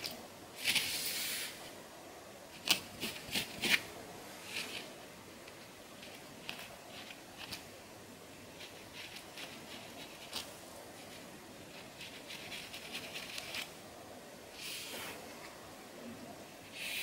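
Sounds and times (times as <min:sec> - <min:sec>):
comb scratching through hair: 0:08.6 - 0:13.7.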